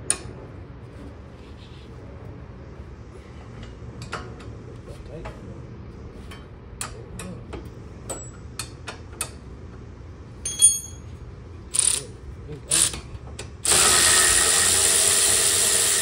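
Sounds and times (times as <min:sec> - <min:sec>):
ringing metal clink: 0:10.4 - 0:11.1
tool rasps: 0:13.7 - 0:16.0.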